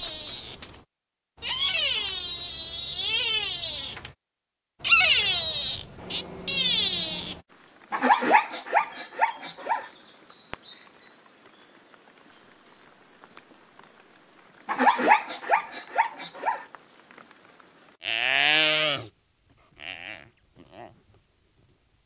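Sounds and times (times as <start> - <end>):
zebra yelping calls: 4.8 - 7.4.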